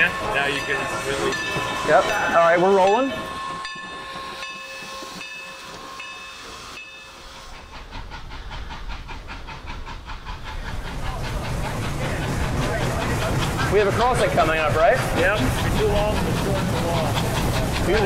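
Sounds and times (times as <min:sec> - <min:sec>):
locomotive bell ringing: 0:00.0 - 0:07.8
steam exhaust chuffs: 0:00.0 - 0:18.0
steam hiss: 0:00.0 - 0:18.0.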